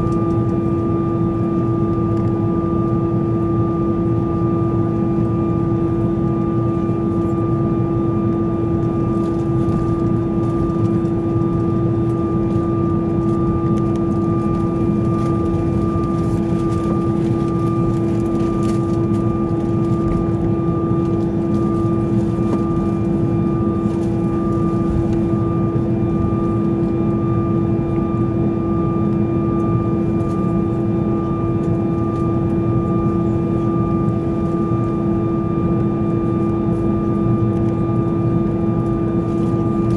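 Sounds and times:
jet engines idling cabin drone: 0.0s - 39.9s.

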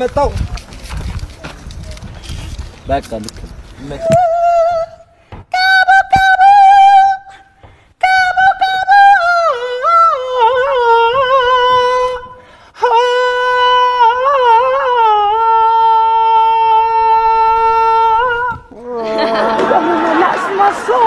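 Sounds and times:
solo voice singing: 4.0s - 7.4s, 8.0s - 19.6s.

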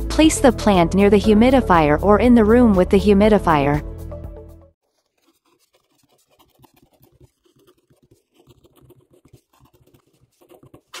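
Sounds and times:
pen scratching on paper: 4.8s - 11.0s.

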